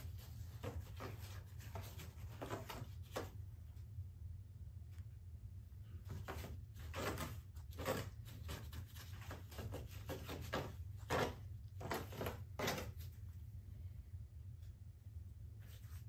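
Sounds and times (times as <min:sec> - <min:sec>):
steady low hum: 0:00.0 - 0:16.0
scratchy rubbing on rough plaster: 0:06.1 - 0:13.1.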